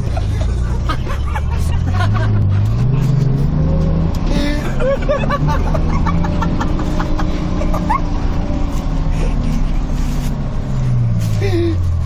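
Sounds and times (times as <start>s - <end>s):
bus engine droning: 0.0s - 12.0s.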